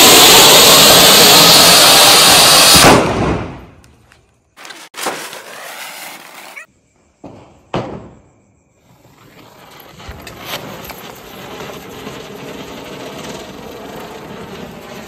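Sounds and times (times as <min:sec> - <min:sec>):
fountain firecracker hissing: 0:00.0 - 0:02.8, 0:09.1 - 0:15.0
ground spinner firework hissing: 0:00.0 - 0:03.0, 0:05.5 - 0:06.7, 0:08.8 - 0:15.0.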